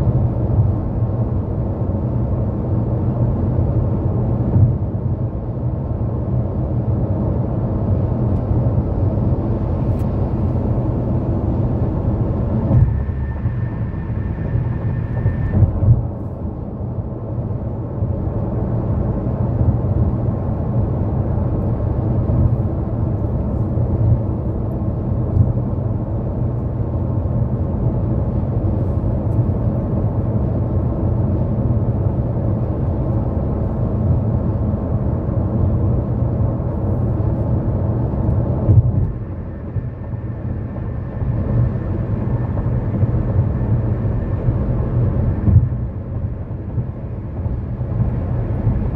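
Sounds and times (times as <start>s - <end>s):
car engine: 0.0s - 48.9s.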